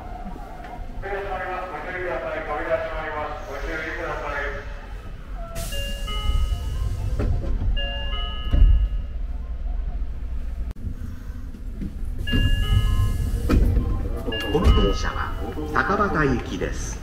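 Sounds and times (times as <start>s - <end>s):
train car rumble: 0.0s - 17.0s
electronic chime tune: 7.8s - 9.2s, 12.3s - 15.7s.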